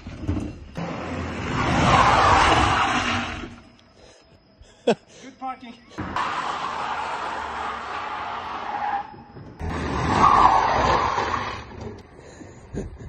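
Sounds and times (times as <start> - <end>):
tyres skidding on asphalt: 0.0 - 3.8, 6.0 - 12.5.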